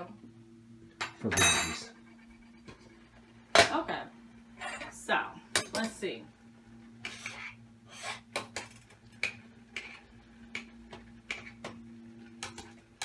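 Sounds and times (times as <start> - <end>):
steady low hum: 0.0 - 13.0
spoon scraping a cooking pot: 7.0 - 8.2.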